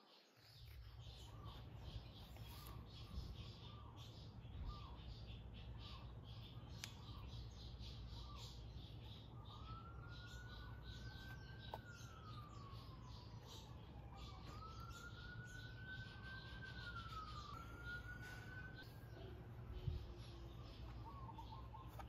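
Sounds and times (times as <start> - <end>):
birds chirping: 0.0 - 22.0
faint siren wailing: 1.0 - 5.1, 5.8 - 22.0.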